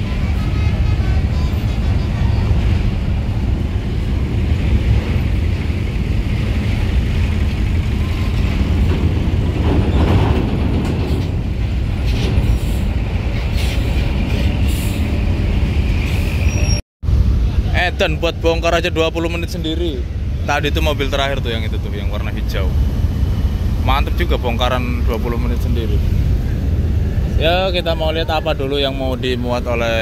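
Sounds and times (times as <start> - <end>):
diesel bus engine rumbling: 0.0 - 30.0.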